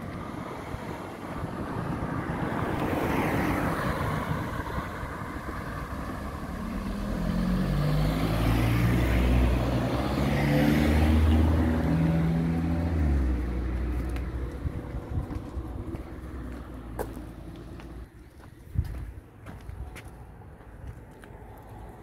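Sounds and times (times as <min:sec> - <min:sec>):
cars passing: 0:00.0 - 0:22.0
low engine hum: 0:00.0 - 0:22.0.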